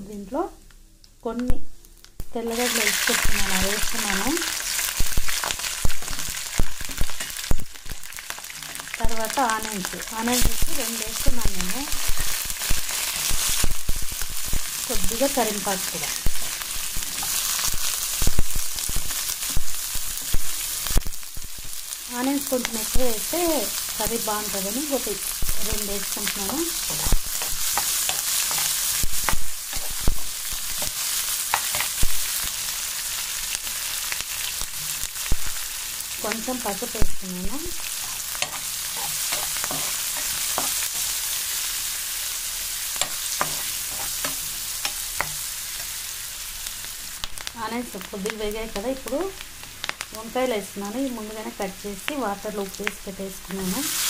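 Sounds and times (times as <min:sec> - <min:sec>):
food sizzling in hot oil: 0:01.7 - 0:54.0
spoon scraping pan: 0:25.1 - 0:32.1, 0:37.8 - 0:41.6, 0:43.0 - 0:46.0.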